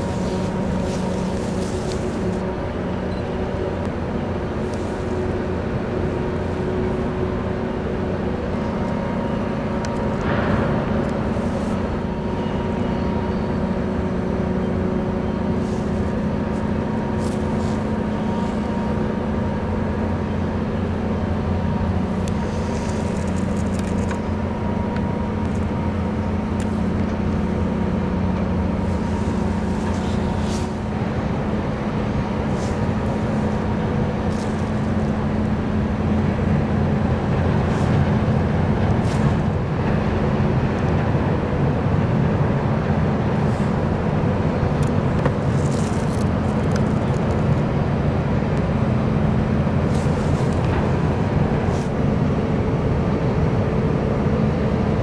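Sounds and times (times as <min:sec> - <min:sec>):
ship diesel engines droning: 0:00.0 - 0:55.0.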